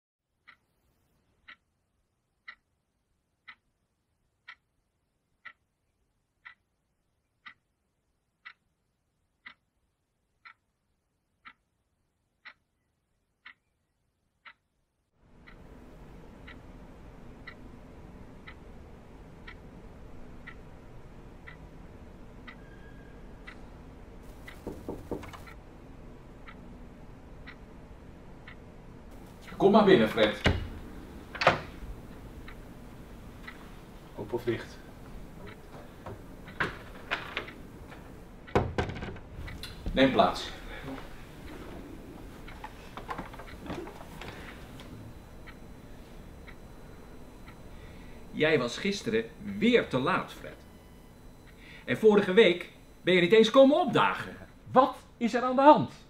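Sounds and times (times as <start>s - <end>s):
room hum: 0.4s - 56.0s
clock ticking: 1.4s - 1.7s, 2.4s - 2.7s, 3.4s - 3.7s, 4.4s - 4.7s, 5.4s - 5.7s, 6.4s - 6.8s, 7.4s - 7.7s, 8.4s - 8.8s, 9.4s - 9.7s, 10.4s - 10.7s, 11.4s - 11.7s, 12.4s - 12.7s, 13.4s - 13.7s, 14.4s - 14.6s, 15.3s - 22.8s, 23.4s - 56.0s.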